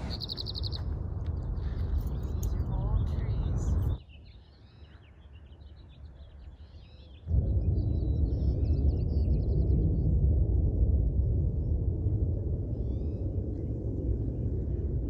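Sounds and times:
steady low rumble: 0.0 - 4.0, 7.3 - 15.0
small birds chirping: 0.0 - 9.8.

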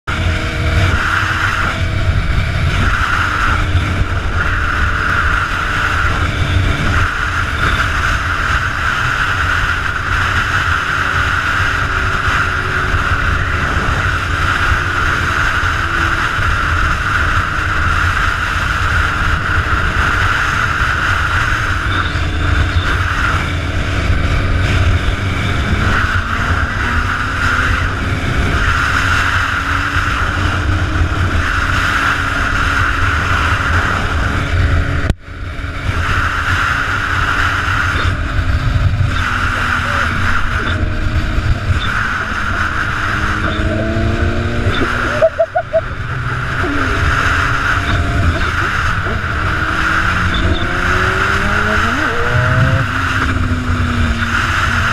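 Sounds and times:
motorcycle engine drone: 0.0 - 54.9
wind buffeting microphone: 0.1 - 54.9.

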